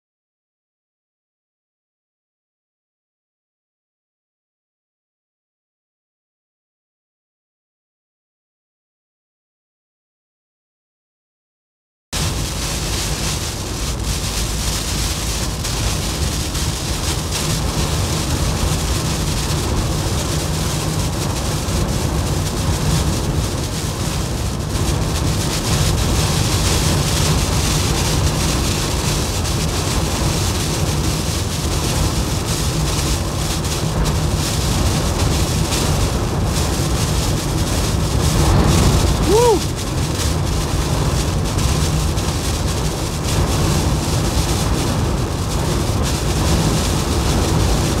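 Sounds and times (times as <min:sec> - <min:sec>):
deep vehicle rumble: 0:12.2 - 0:48.0
heavy rain and wind on vehicle: 0:12.2 - 0:48.0.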